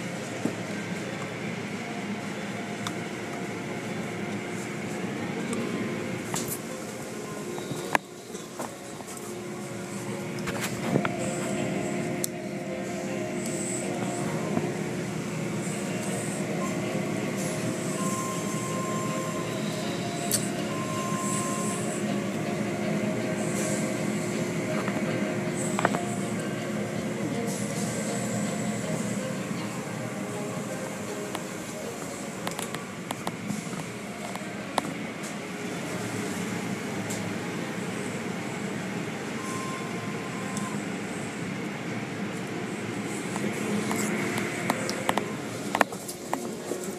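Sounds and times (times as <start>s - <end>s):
faint steady whine: 0.0s - 46.9s
wash machinery hum: 0.0s - 46.9s
thin steady tone: 9.3s - 32.5s.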